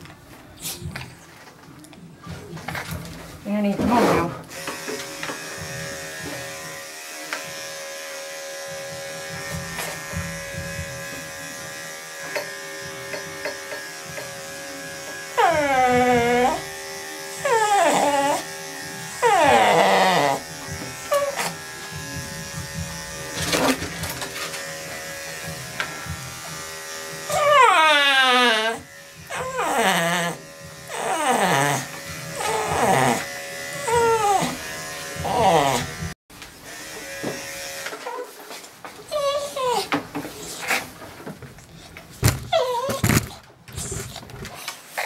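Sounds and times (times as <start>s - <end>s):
electric clippers humming: 4.5s - 38.1s
dog whining: 15.4s - 16.6s, 17.4s - 18.5s, 19.2s - 20.4s, 21.1s - 21.6s, 27.3s - 34.6s, 35.2s - 36.0s, 39.1s - 40.6s, 42.5s - 44.0s.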